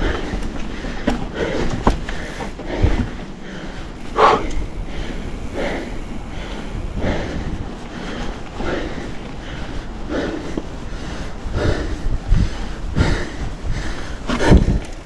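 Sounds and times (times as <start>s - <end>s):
bike knocking on trail: 0.0s - 9.8s
person breathing hard: 0.0s - 15.0s
wind rumble on microphone: 0.0s - 15.0s.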